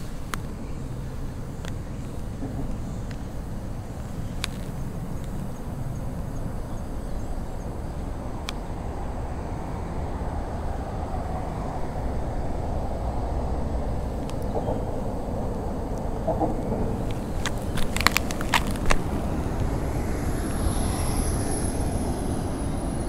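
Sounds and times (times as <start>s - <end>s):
low outdoor rumble: 0.0s - 23.0s
sharp ticks: 15.9s - 19.7s.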